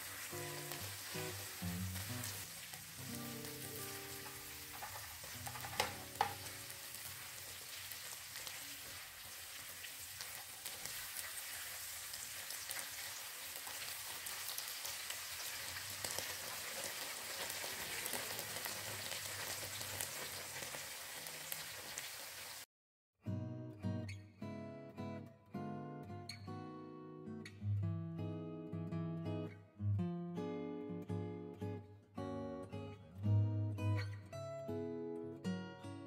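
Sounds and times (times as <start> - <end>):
food sizzling in a pan: 0.0 - 22.7
spatula stirring: 4.2 - 6.5.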